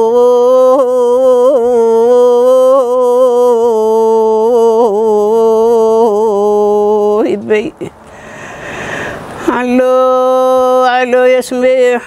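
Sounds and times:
woman singing a long note: 0:00.0 - 0:07.9.

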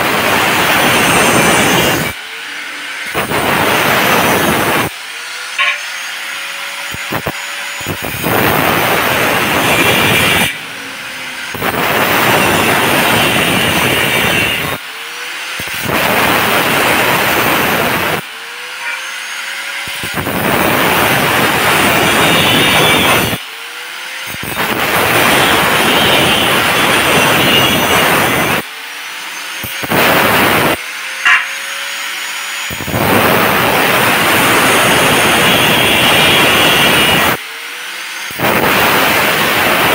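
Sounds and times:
angle grinder cutting steel: 0:00.0 - 0:39.9
grinder disc whining free: 0:00.3 - 0:23.4.

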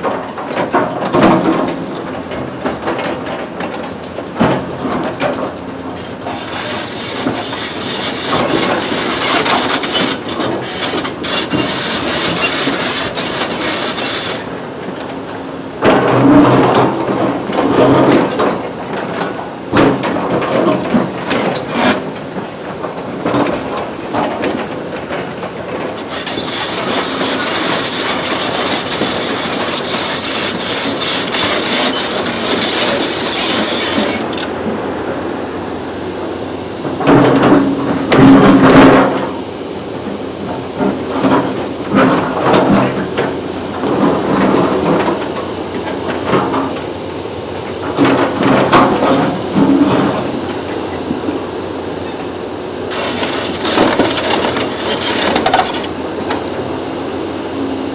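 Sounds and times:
excavator machinery rumble: 0:00.0 - 0:57.9
metal and wood clanking: 0:52.9 - 0:56.4.

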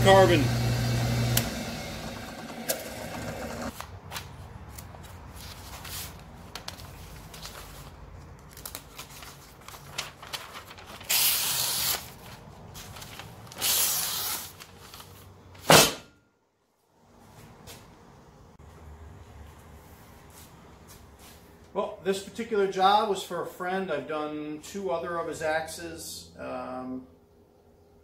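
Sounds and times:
paper rustling: 0:03.7 - 0:15.5.

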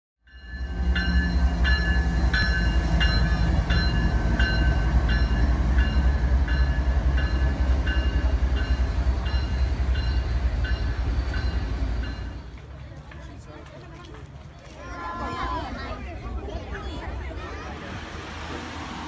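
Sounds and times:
locomotive bell ringing: 0:00.2 - 0:12.6
diesel locomotives idling: 0:00.3 - 0:19.0.

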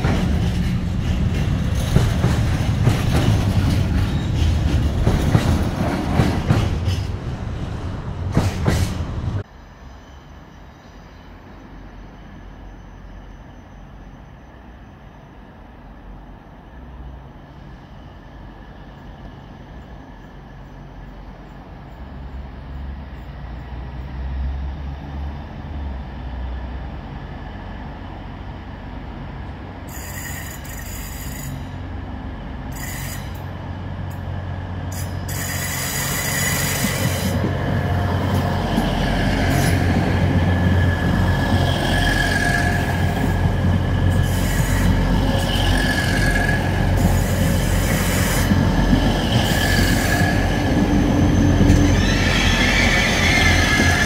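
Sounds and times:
passenger train passing: 0:00.0 - 0:54.0
wheel-on-rail hiss and squeal: 0:09.6 - 0:21.2, 0:29.8 - 0:32.0, 0:32.7 - 0:33.6, 0:34.9 - 0:37.5, 0:38.2 - 0:40.0, 0:40.7 - 0:54.0.

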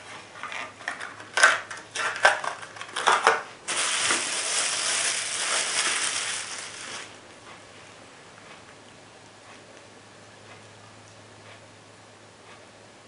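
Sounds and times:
plastic blister pack crackling: 0:01.4 - 0:07.2
bubble wrap crinkling: 0:02.0 - 0:07.2.

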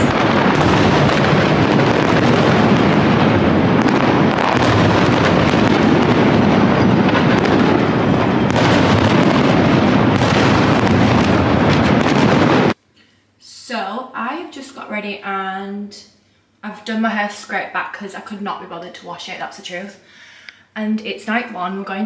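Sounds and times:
fireworks bangs and crackles: 0:00.0 - 0:12.8.

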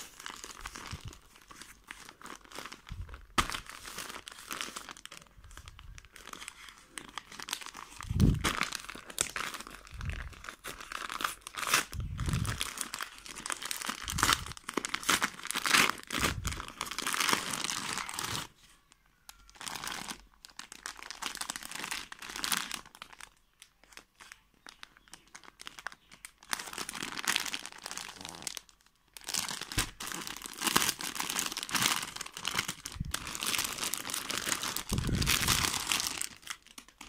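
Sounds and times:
plastic wrapper crinkling: 0:00.0 - 0:37.0
paper envelope tearing and crumpling: 0:29.3 - 0:36.8.

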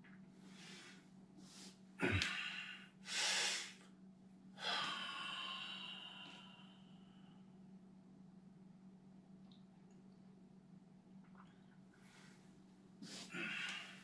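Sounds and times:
man breathing hard: 0:00.6 - 0:03.8, 0:04.6 - 0:07.4, 0:13.0 - 0:14.0.

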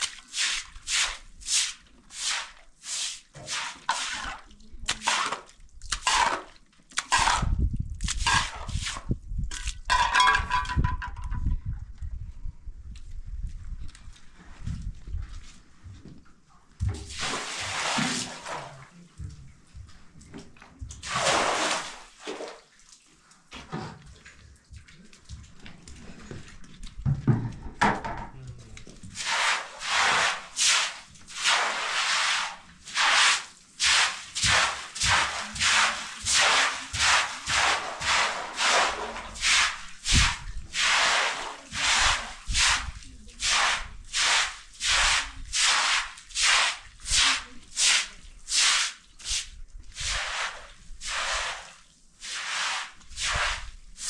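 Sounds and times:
broom sweeping wet concrete: 0:00.0 - 0:09.2, 0:16.9 - 0:19.0, 0:21.0 - 0:23.2, 0:29.1 - 0:54.0
water splashing from bucket: 0:00.0 - 0:10.9, 0:16.8 - 0:19.0, 0:20.8 - 0:26.9, 0:29.0 - 0:54.0.

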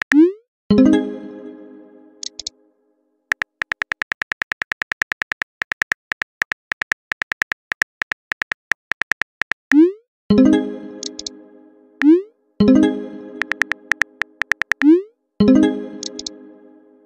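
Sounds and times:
music: 0:00.7 - 0:03.3, 0:10.3 - 0:17.0
keyboard tap clicks: 0:02.2 - 0:02.5, 0:03.3 - 0:09.8, 0:11.0 - 0:11.3, 0:13.4 - 0:14.9, 0:16.0 - 0:16.3.

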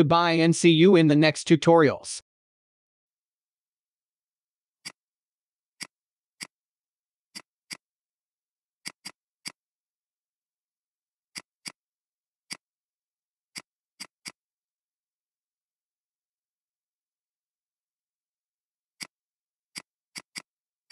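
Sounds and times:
computer mouse clicks: 0:05.8 - 0:06.6, 0:08.8 - 0:09.6, 0:11.3 - 0:11.8, 0:13.5 - 0:14.4, 0:19.0 - 0:20.9.

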